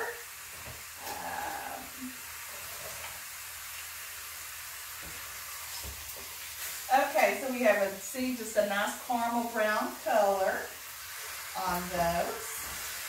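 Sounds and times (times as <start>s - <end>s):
meat sizzling in a skillet: 0.0s - 13.0s.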